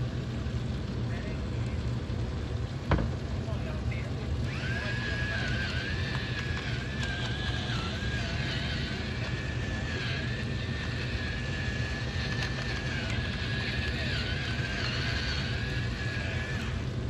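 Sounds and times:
spice grinder motor whirring: 4.3s - 17.0s.

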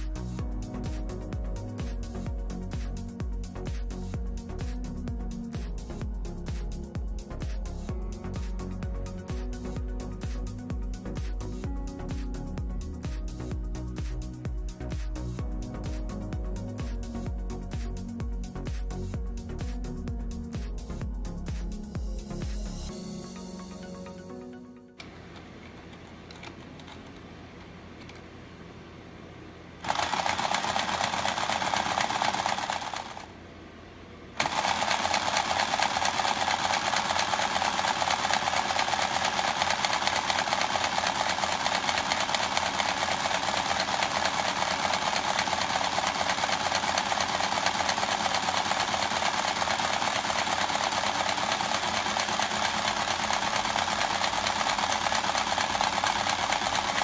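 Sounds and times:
toy game mechanism buzzing rattle: 29.8s - 33.3s, 34.4s - 57.0s.

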